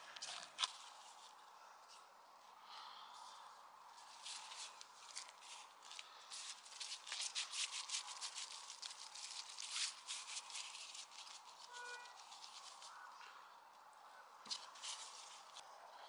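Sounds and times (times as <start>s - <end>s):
hands rubbing and scraping dough: 4.0s - 13.2s, 14.5s - 15.7s.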